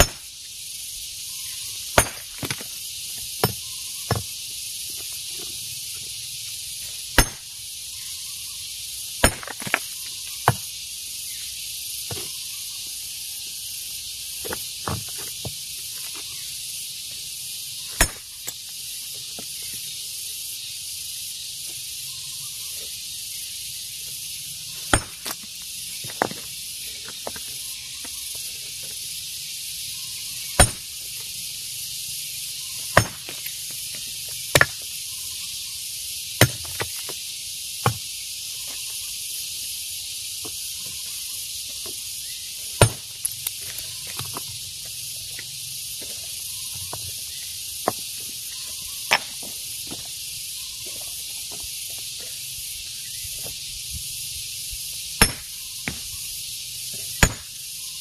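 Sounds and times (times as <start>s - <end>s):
hammer striking rock: 0.0s - 0.3s, 1.9s - 2.7s, 3.4s - 4.3s, 7.2s - 7.5s, 9.2s - 10.7s, 18.0s - 18.3s, 24.9s - 25.4s, 30.6s - 30.9s, 32.9s - 33.5s, 34.5s - 34.9s, 36.4s - 37.0s, 37.8s - 38.0s, 42.8s - 43.1s, 55.2s - 56.0s, 57.2s - 57.6s
high-pitched hiss: 0.0s - 58.0s.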